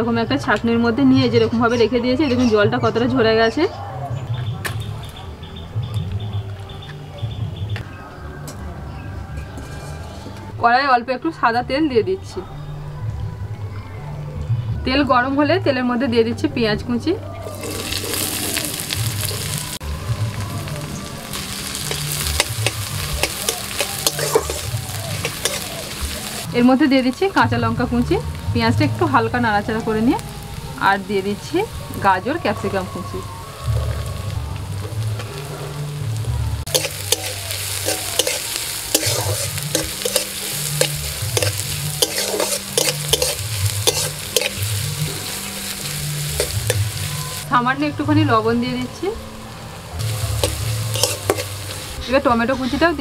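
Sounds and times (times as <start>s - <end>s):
onion sizzling in hot oil: 17.4s - 53.0s
spatula knocking and scraping pan: 22.3s - 25.6s, 36.7s - 44.6s, 50.4s - 51.6s.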